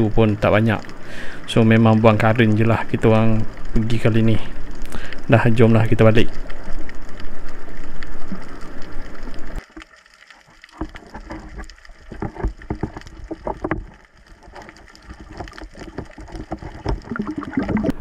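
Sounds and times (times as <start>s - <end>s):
knocks and water splashes: 10.5s - 18.0s.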